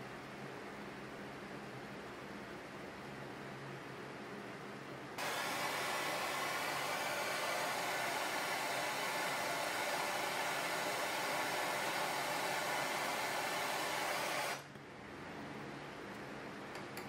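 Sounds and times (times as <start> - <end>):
gas torch flame hissing: 5.2 - 14.7.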